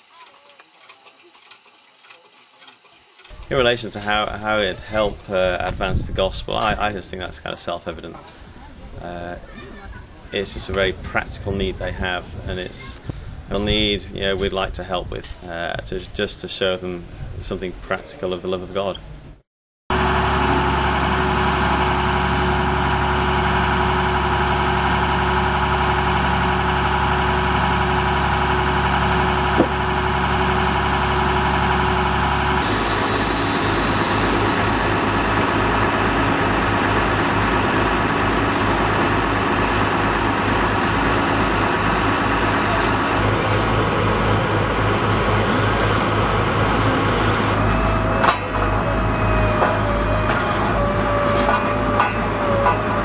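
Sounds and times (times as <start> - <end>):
drilling rig engine running: 0.0 - 8.8, 19.9 - 53.0.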